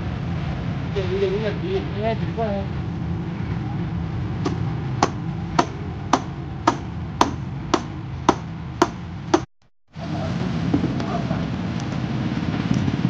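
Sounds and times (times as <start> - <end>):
steady low rumble: 0.0 - 13.0
hammer striking metal hub: 4.5 - 9.5.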